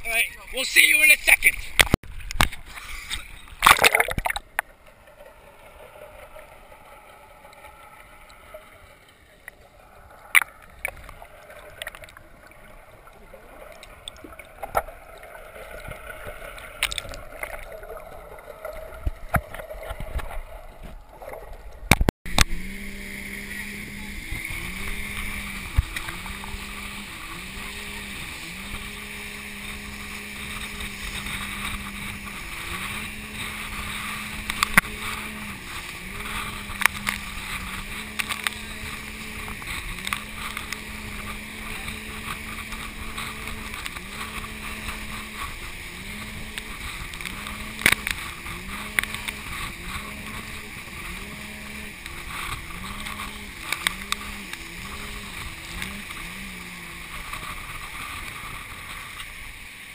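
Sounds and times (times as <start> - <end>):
rushing water and wind: 0.0 - 59.9
motorboat engine droning: 20.5 - 59.9.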